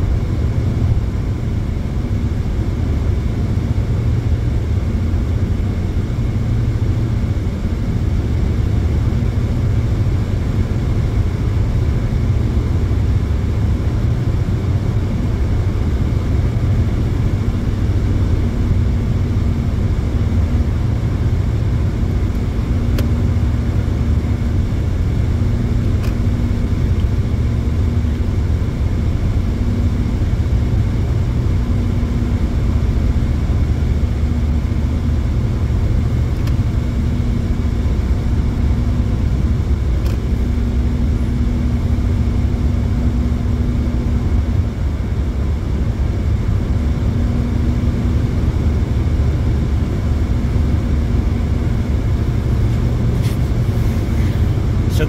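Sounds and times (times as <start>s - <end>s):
faint engine hum: 0.0s - 55.0s
tyres rumbling on road: 47.2s - 55.0s.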